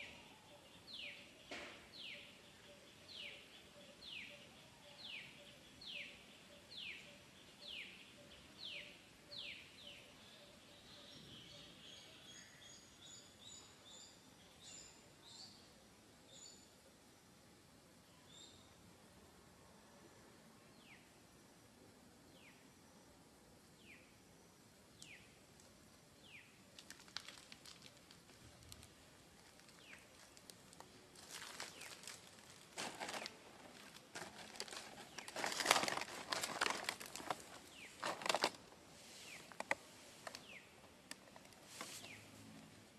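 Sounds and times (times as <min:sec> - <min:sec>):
dry leaves crackling and rustling: 0:26.7 - 0:38.7.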